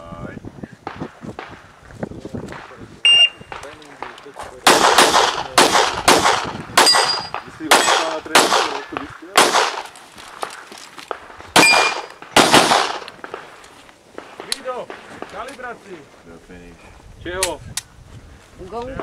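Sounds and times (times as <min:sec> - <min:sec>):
pistol shots: 0:03.4 - 0:10.0, 0:11.1 - 0:13.5
short metallic ring: 0:06.8 - 0:07.4.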